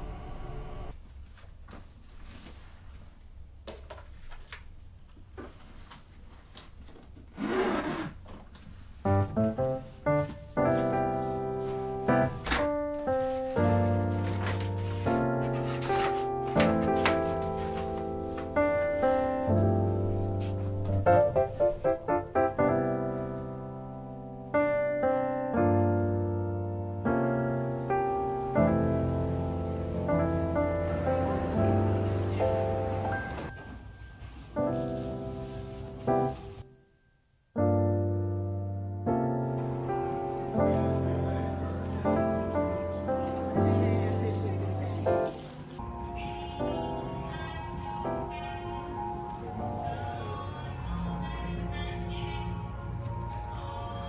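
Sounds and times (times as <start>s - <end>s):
bag rubbing against wood: 7.3s - 8.2s
piano music: 9.0s - 54.0s.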